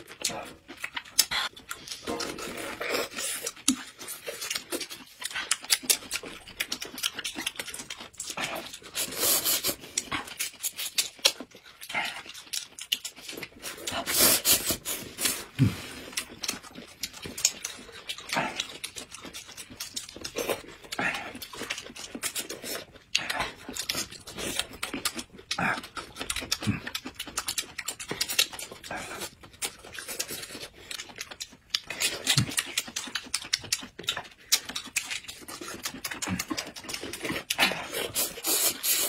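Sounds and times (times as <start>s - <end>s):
chewing: 0.0s - 39.0s
wet slurping and sucking: 8.3s - 10.9s, 13.5s - 16.4s, 37.2s - 39.0s.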